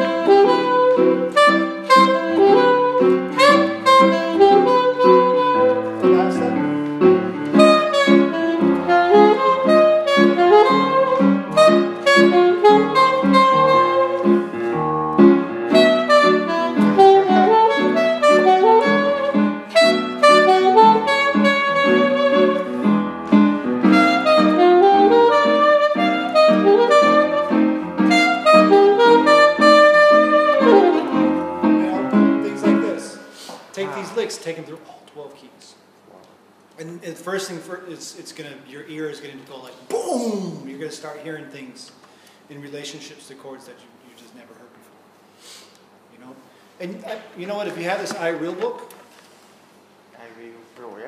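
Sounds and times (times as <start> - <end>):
jazz melody over chords: 0.0 - 34.4.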